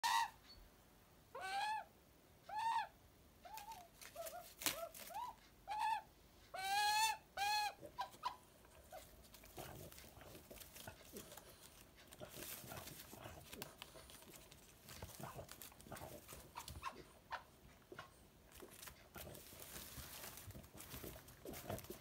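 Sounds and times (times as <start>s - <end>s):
faint rustling and tapping: 8.2s - 22.0s.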